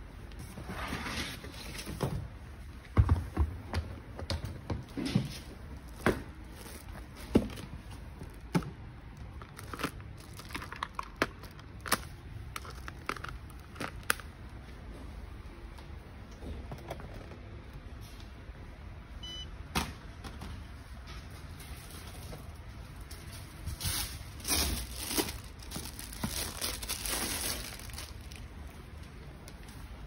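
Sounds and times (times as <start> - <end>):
plastic wrap crinkling: 5.7 - 14.6, 21.6 - 29.8.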